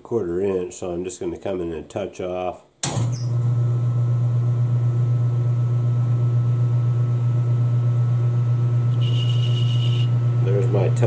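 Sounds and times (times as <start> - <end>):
metal lathe running: 8.9 - 11.0.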